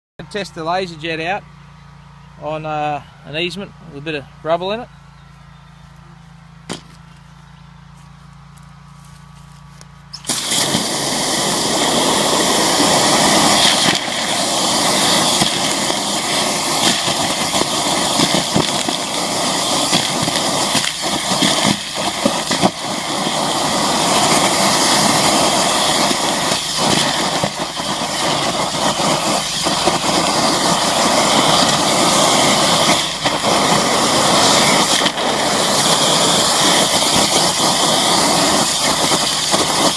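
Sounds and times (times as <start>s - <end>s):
engine running: 0.2s - 39.9s
water jet hissing: 10.2s - 39.9s.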